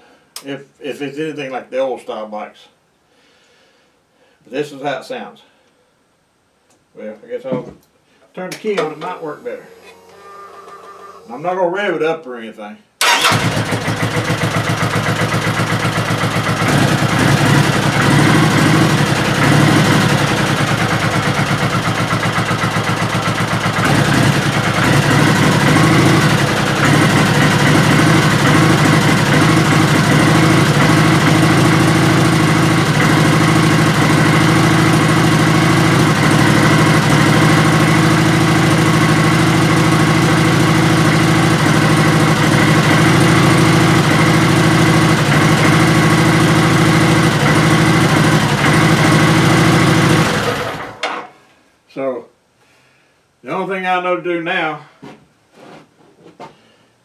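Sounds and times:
motorcycle engine idling: 13.0 - 51.0.

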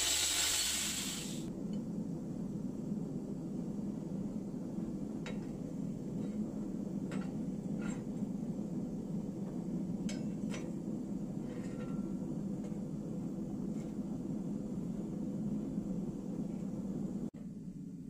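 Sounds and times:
gas forge burner rushing: 0.0 - 1.5.

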